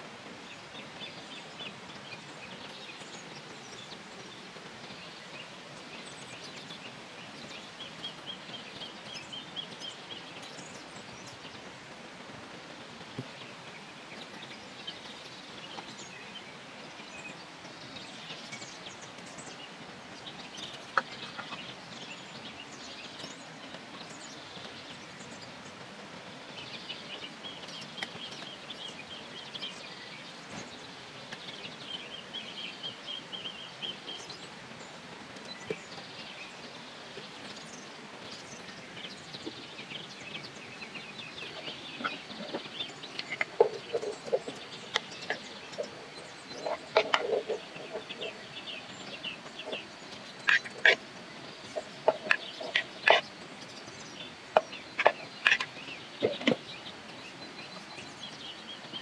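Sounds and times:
birds chirping and trilling: 0.0s - 11.8s, 12.6s - 59.0s
steady background hiss: 0.0s - 59.0s.

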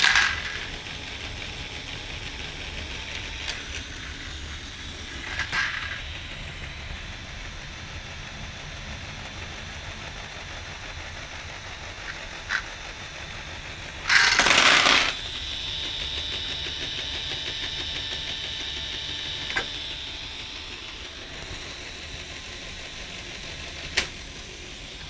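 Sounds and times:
plastic balls clattering: 0.0s - 0.8s, 5.2s - 6.1s, 14.0s - 15.2s
toy motor whining: 0.0s - 25.0s.

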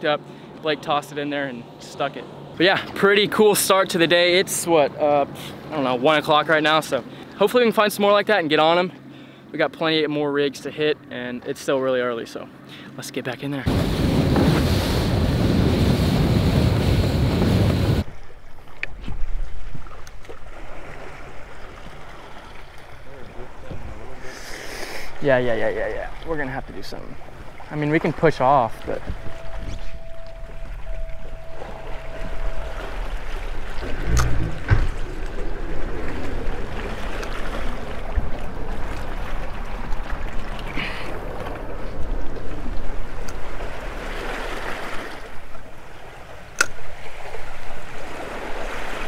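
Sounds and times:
calm water washing: 0.0s - 49.0s
water and hull noise: 13.6s - 49.0s
wind rushing on microphone: 13.7s - 18.1s, 28.8s - 44.1s.

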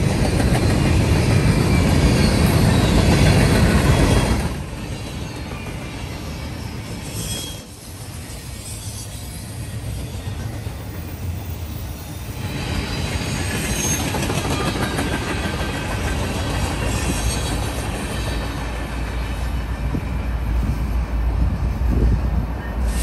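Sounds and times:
wheel squeal and hiss: 0.6s - 20.0s, 22.6s - 23.0s
diesel locomotive rumble: 9.8s - 23.0s.

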